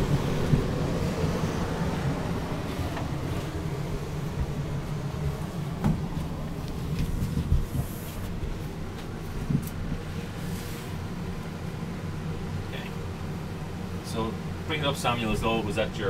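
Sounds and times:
air conditioner rumble and hum: 0.0 - 16.0
microphone handling knocks: 5.8 - 6.2.

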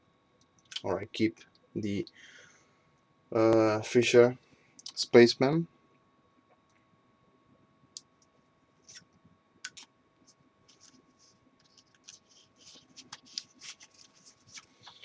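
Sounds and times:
nylon document holder rustling: 11.6 - 15.0.

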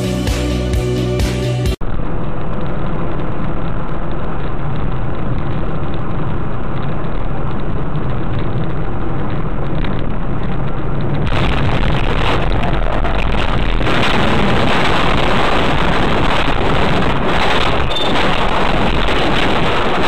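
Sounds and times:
music intro: 0.0 - 1.8
car engine and tyre noise: 0.0 - 20.0.

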